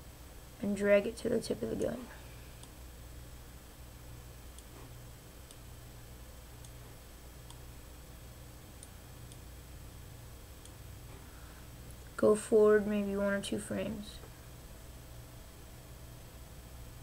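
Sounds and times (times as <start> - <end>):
low steady hum: 0.0 - 17.0
computer mouse clicks: 6.6 - 7.6.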